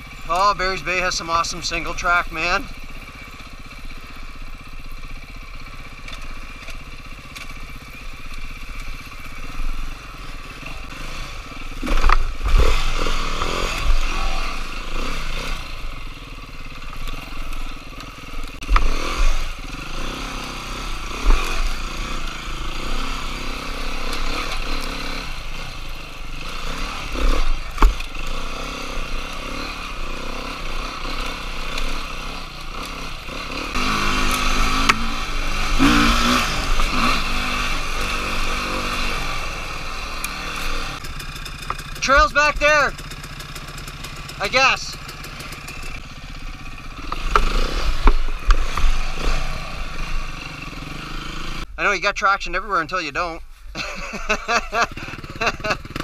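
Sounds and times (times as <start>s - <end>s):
dirt bike engine running: 0.0s - 56.0s
bike knocking and clattering on ground: 41.0s - 42.1s, 42.9s - 46.4s.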